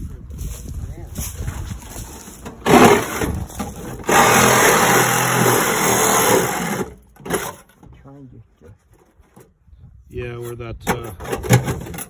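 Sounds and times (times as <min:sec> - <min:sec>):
reciprocating saw cutting metal: 0:04.0 - 0:07.0.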